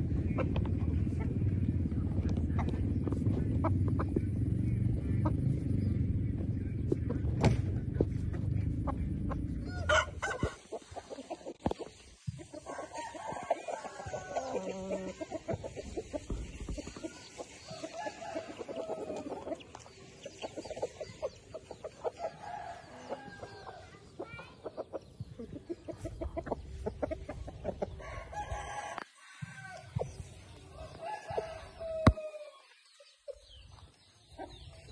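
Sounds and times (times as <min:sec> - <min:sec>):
low rumble: 0:00.0 - 0:10.6
roosters clucking: 0:00.0 - 0:34.9
rooster crowing: 0:09.7 - 0:10.6, 0:12.6 - 0:15.0, 0:28.0 - 0:29.8, 0:30.8 - 0:32.6.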